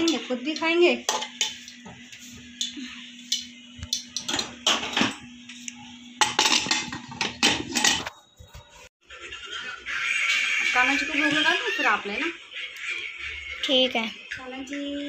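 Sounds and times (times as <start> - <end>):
spoon clanking on steel plates: 0.0 - 1.8, 2.6 - 5.3, 6.2 - 8.2.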